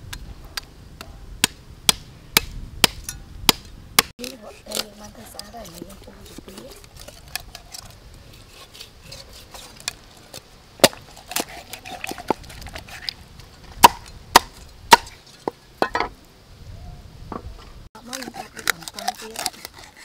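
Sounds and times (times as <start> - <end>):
cleaver chopping on wood: 1.4 - 4.1, 10.8 - 11.6, 13.8 - 15.1.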